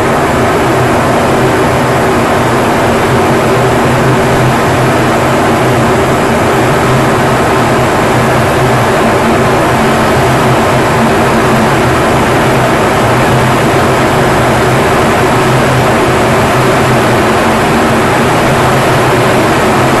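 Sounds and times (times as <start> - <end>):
jet engine and airflow rush: 0.0 - 20.0
low steady tones: 0.0 - 20.0.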